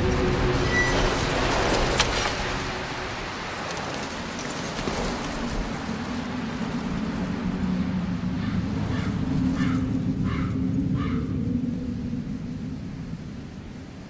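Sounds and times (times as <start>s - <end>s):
rain on wet paving: 1.1s - 6.8s.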